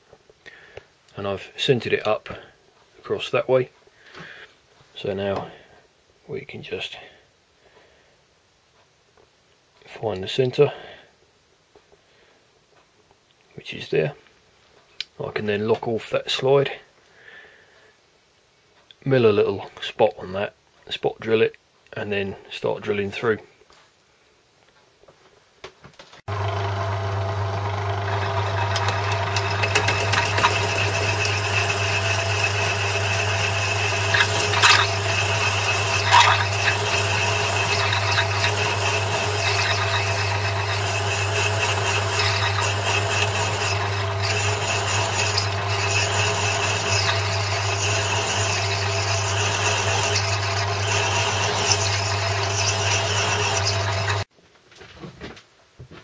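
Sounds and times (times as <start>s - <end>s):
lathe motor hum: 26.3s - 54.3s
drill cutting into steel: 28.0s - 54.3s.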